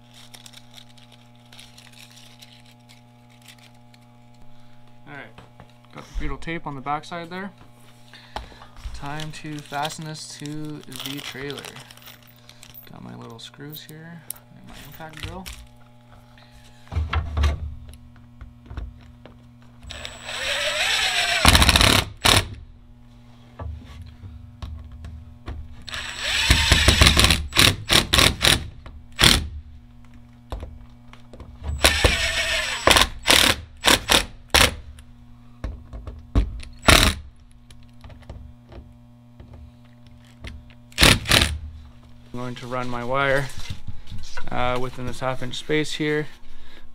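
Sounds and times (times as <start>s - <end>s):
impact driver driving screws: 19.9s - 22.6s, 25.9s - 29.5s, 31.7s - 34.8s, 36.8s - 37.2s, 40.9s - 41.6s.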